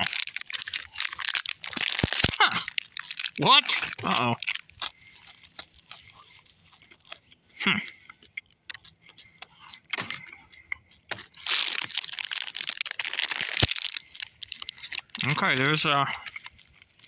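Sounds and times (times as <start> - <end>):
plastic toys clicking and rustling: 0.0 - 6.2, 11.1 - 17.0
foil wrapper crinkling: 0.0 - 7.4, 9.9 - 17.0.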